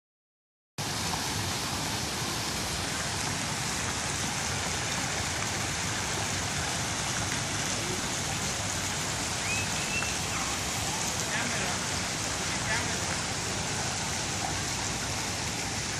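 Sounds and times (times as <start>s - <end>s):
fountain jets spraying water: 0.8s - 15.9s.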